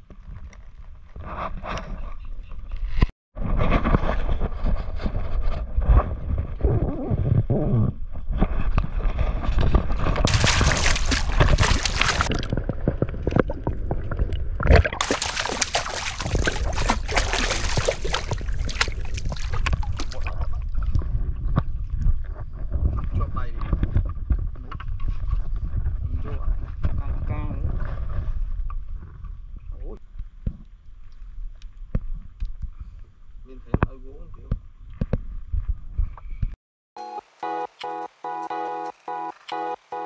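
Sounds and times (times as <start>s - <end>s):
water sloshing and splashing: 10.3s - 21.0s.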